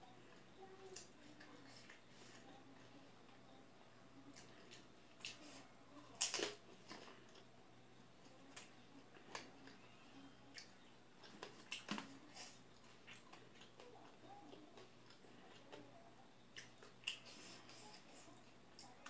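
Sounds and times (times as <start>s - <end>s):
soft mouth clicks while chewing: 10.5s - 15.9s, 16.5s - 18.0s.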